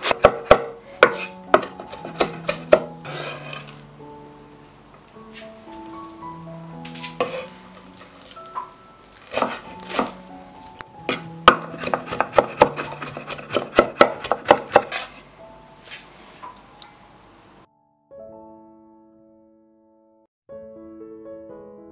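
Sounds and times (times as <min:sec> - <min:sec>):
cleaver chopping on wooden board: 0:00.0 - 0:02.9, 0:09.2 - 0:10.2, 0:11.1 - 0:15.1
soft piano music: 0:00.0 - 0:21.9.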